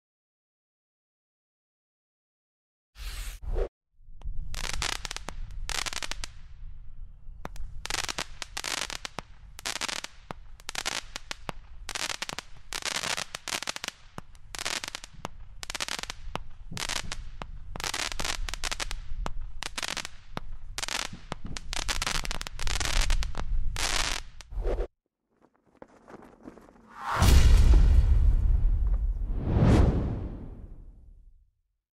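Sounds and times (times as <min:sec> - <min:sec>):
crackling firework stars: 0:04.2 - 0:06.7, 0:07.4 - 0:24.6
fireworks shots: 0:26.9 - 0:31.2
low rumble: 0:26.9 - 0:31.3.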